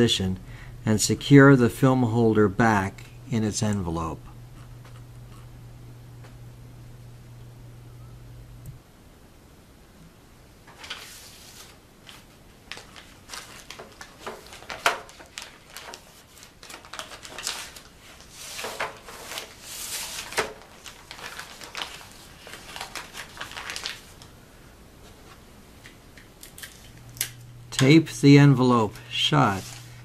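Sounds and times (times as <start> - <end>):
paper envelope rustling: 10.7 - 24.3, 28.9 - 30.0.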